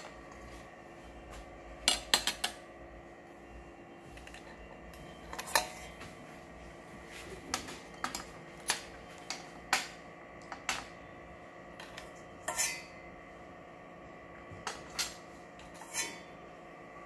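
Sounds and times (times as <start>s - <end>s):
faint steady hum: 0.0s - 17.0s
metal utensils clinking on dishes: 5.2s - 6.0s, 7.5s - 10.9s, 11.8s - 13.0s, 14.6s - 16.3s.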